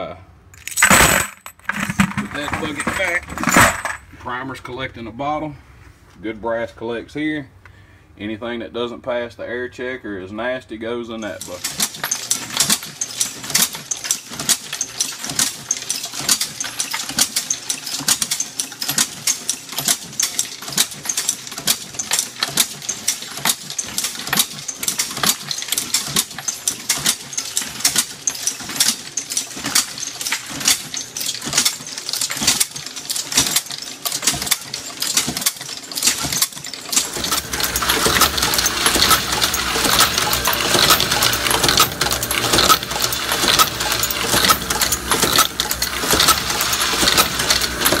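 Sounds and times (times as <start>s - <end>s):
metallic clicks and clinks: 0.6s - 4.1s, 11.2s - 48.0s
machine low hum: 36.9s - 48.0s.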